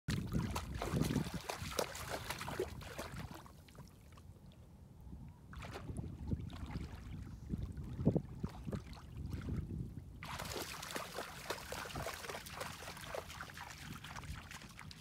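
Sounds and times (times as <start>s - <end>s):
wind rumbling on microphone: 0.1s - 3.5s, 4.6s - 15.0s
dog splashing in shallow water: 0.1s - 3.9s, 10.2s - 15.0s.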